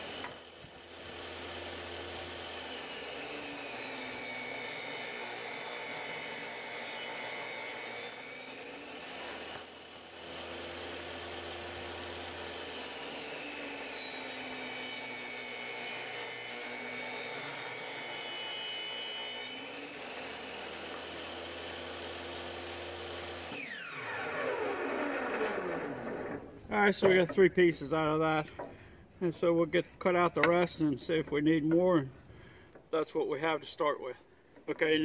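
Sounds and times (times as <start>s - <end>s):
table saw ripping wood: 0.0s - 27.4s.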